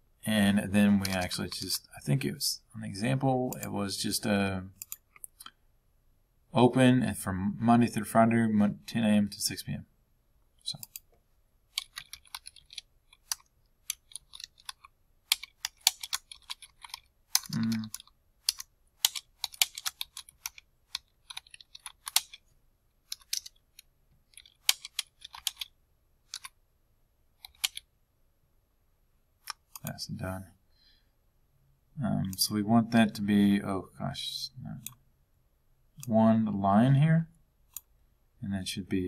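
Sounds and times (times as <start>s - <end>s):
typing on a keyboard: 11.7s - 22.4s, 23.1s - 25.7s, 26.3s - 26.6s, 27.4s - 27.8s.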